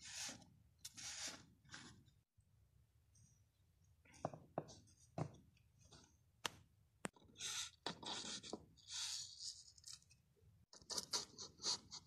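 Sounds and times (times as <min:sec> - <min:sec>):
plastic toys scraping and rustling: 0:07.3 - 0:10.2.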